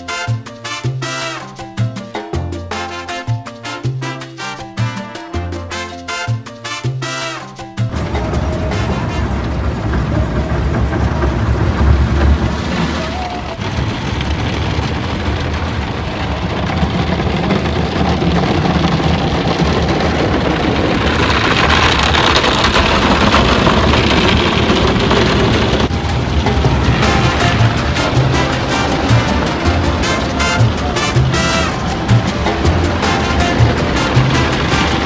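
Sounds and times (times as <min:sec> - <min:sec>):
steady low rumble: 0:07.9 - 0:35.0
water and brushes beating on car: 0:07.9 - 0:35.0.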